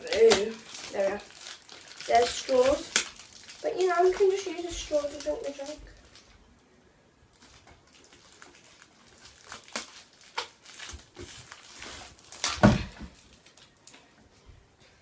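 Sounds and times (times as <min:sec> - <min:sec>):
plastic packaging crinkling: 0:00.0 - 0:06.4, 0:07.3 - 0:14.1.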